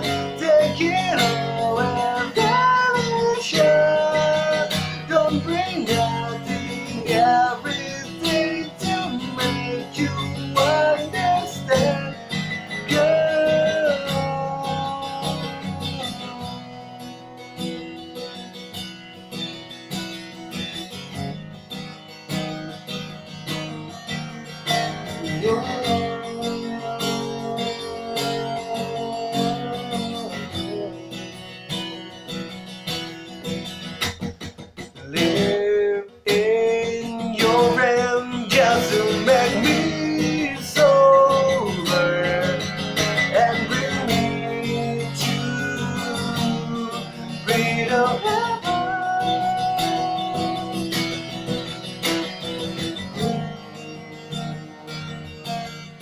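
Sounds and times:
man singing: 0.0 - 18.2, 24.6 - 31.2, 35.0 - 51.4, 53.1 - 53.7
acoustic guitar strumming: 0.0 - 56.0.

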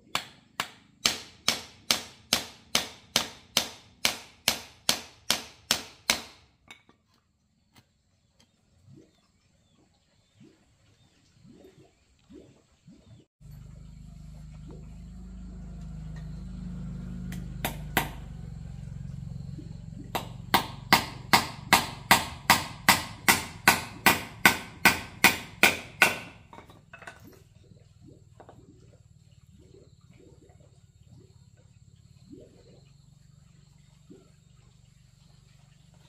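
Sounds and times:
hammer driving nails into wood: 0.1 - 6.4, 20.2 - 26.4.

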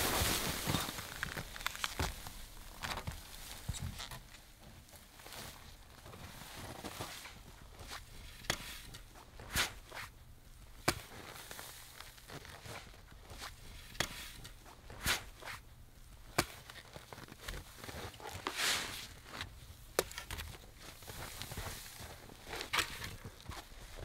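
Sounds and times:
shovel scraping: 0.0 - 2.0, 6.8 - 10.1, 11.0 - 15.6, 17.8 - 24.0
shovel crunching snow: 0.0 - 2.4, 6.6 - 10.1, 10.9 - 15.6, 16.4 - 24.0
footsteps crunching in snow: 0.0 - 3.8, 4.6 - 8.0, 16.6 - 19.6, 20.5 - 24.0.

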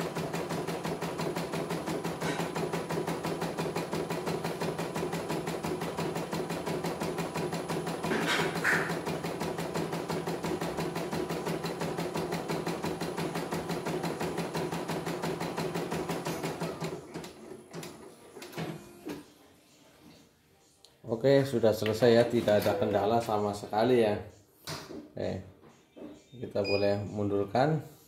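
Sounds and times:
embroidery machine stitching: 0.0 - 18.1.

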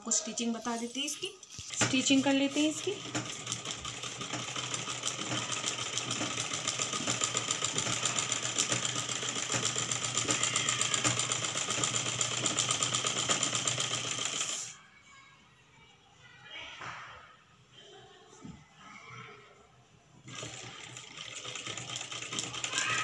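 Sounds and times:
sewing machine stitching: 1.6 - 14.8, 20.2 - 23.0.

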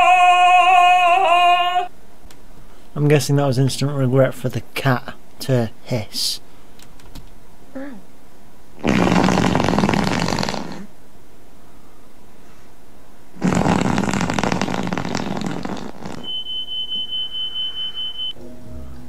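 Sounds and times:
loud rough rasping noise: 13.4 - 16.3
high-pitched beep: 16.2 - 18.4.

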